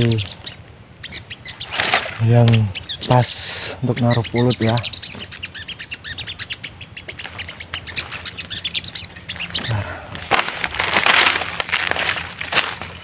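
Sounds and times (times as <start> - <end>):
small birds chirping: 0.0 - 13.0
footsteps on dry leaves: 7.2 - 13.0.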